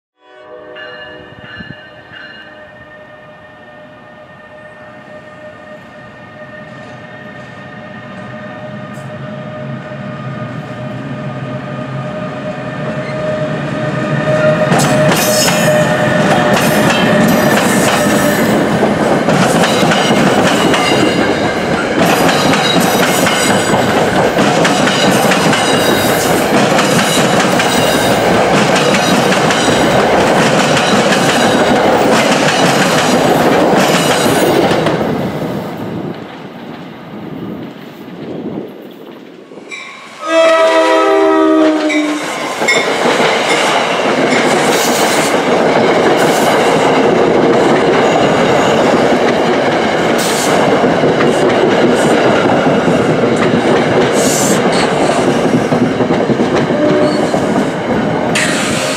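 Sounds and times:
electric train passing: 0.3s - 58.9s.

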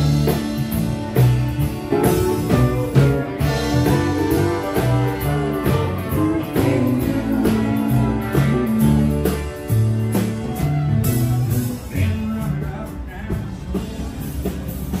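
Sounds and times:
country-rock band playing: 0.0s - 15.0s.

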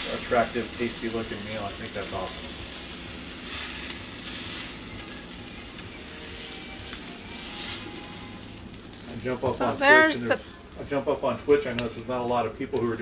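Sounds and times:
fish sizzling in hot oil: 0.0s - 12.2s
tongs turning food: 2.8s - 10.8s.

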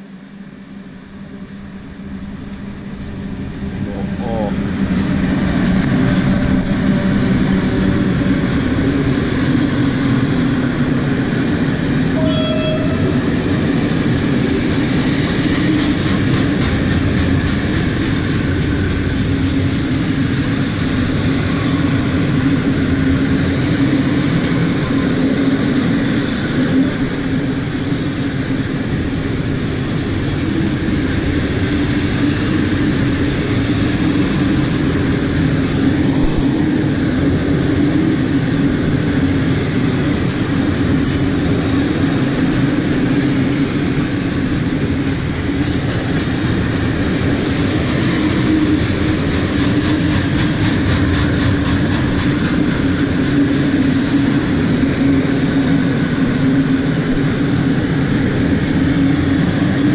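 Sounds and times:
freight train rolling on rails: 0.0s - 59.9s
train horn toot: 12.2s - 13.2s.

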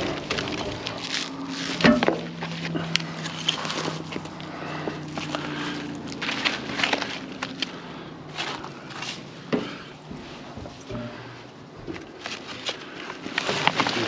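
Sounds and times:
steady low hum: 0.0s - 13.4s
footsteps: 8.3s - 12.8s.

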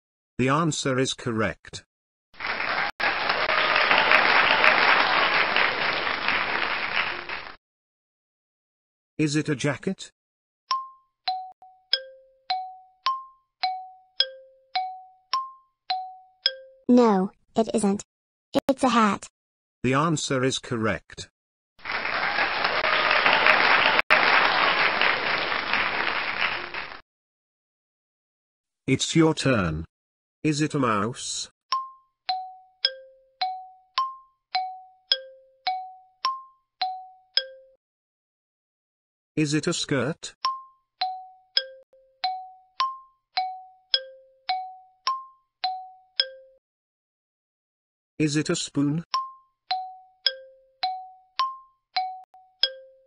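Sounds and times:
crowd clapping: 2.4s - 7.6s, 21.8s - 27.0s
studio audience applause: 2.4s - 7.6s, 21.8s - 27.0s.

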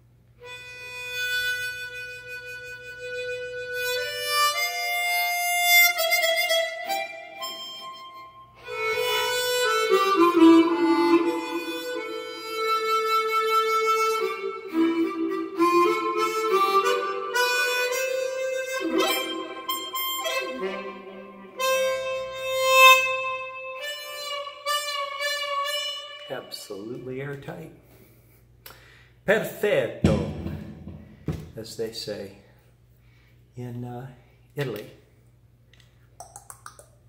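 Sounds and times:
harmonica playing: 0.4s - 27.2s.

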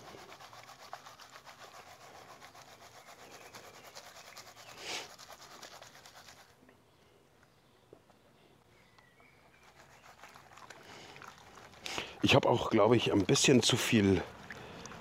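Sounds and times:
water and gravel sloshing in pan: 9.5s - 15.0s.

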